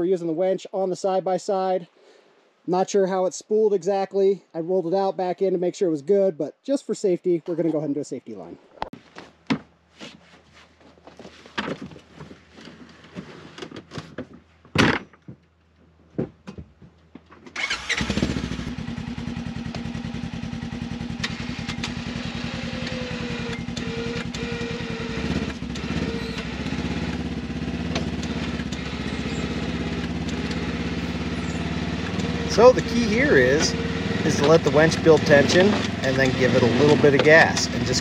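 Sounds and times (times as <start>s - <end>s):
knocks and clunks: 11.0s - 15.5s, 16.1s - 17.6s, 27.9s - 30.6s, 34.4s - 38.0s
engine starting and idling: 17.6s - 38.0s.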